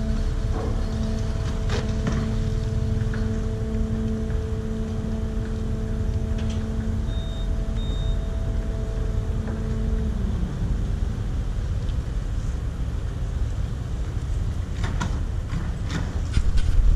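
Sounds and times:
humming tone: 0.0s - 14.8s
ferry engines rumbling: 0.0s - 16.9s
short high beeps: 7.0s - 8.4s.

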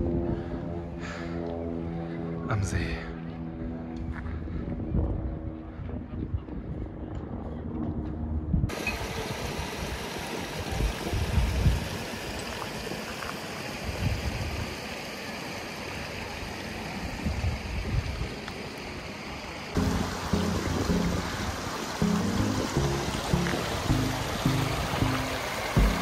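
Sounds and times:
wind buffeting microphone: 4.1s - 8.8s, 10.7s - 12.1s, 17.2s - 18.4s
background music: 19.8s - 26.0s.

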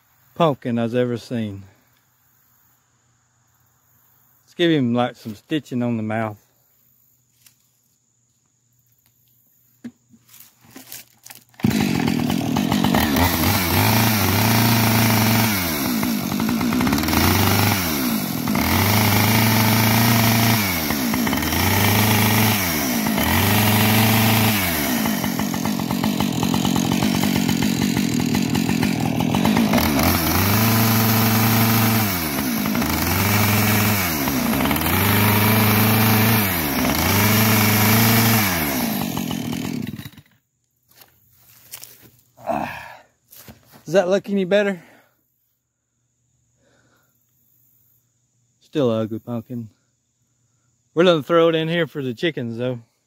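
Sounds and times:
chainsaw revving: 10.8s - 40.4s.

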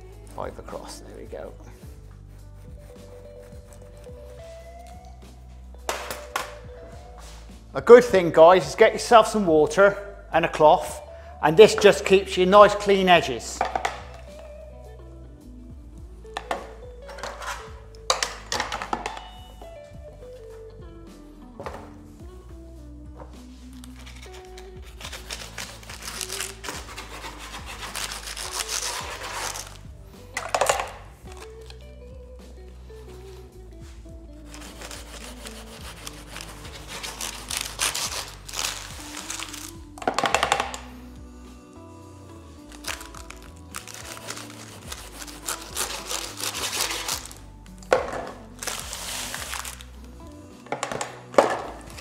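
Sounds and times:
background music: 0.0s - 52.0s
knife sawing through pastry: 24.0s - 29.8s, 34.4s - 39.6s, 43.8s - 47.4s.

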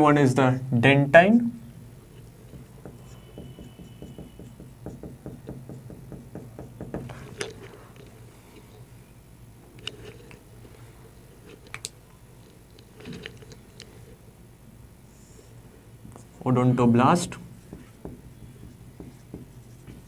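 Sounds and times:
steady low hum: 0.0s - 20.0s
marker writing on whiteboard: 2.1s - 8.1s, 17.5s - 20.0s.

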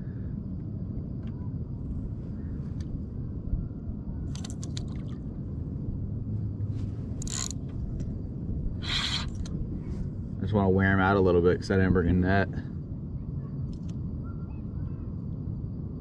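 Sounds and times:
wind and water rumble: 0.0s - 16.0s
fishing reel clicks: 7.2s - 7.6s, 8.9s - 9.5s.

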